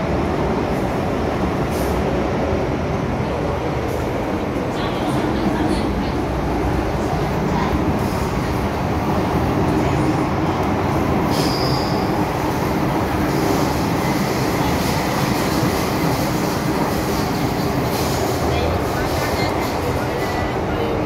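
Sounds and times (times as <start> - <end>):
metro wheels rumbling on rail: 0.0 - 21.0
high squeal: 11.3 - 12.2.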